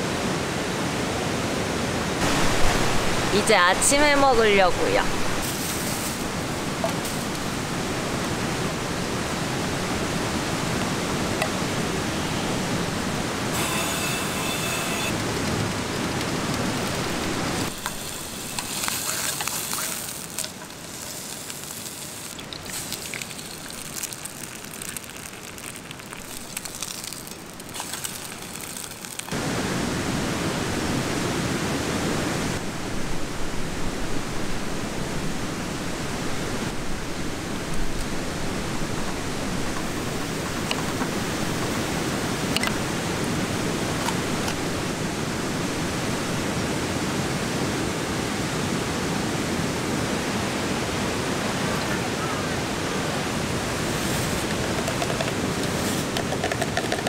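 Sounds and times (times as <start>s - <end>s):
stream rushing: 0.0s - 57.0s
egg sizzling in oil: 16.8s - 29.4s.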